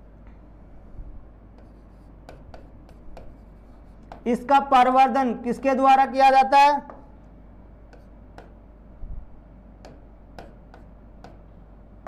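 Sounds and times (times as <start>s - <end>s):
pen tip tapping on board: 1.6s - 3.4s, 4.0s - 4.3s, 7.9s - 8.6s, 9.8s - 11.5s.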